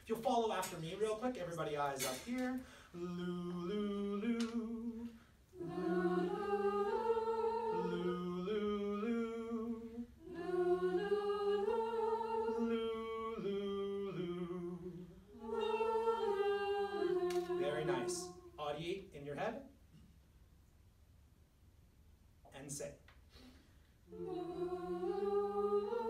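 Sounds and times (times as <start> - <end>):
group of voices singing: 2.9 - 18.6, 24.1 - 26.0.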